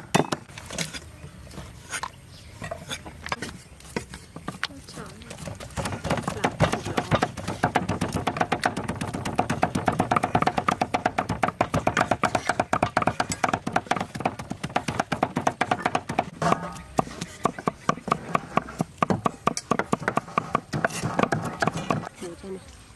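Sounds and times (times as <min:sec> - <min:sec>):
knife chopping on cutting board: 0:05.5 - 0:22.1.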